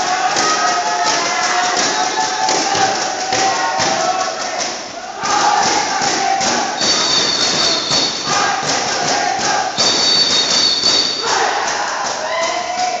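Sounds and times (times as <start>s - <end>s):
clapping and noisemakers: 0.0s - 13.0s
spectators cheering and shouting: 0.0s - 13.0s
shrill whistle blasts: 6.8s - 8.4s, 9.8s - 11.5s.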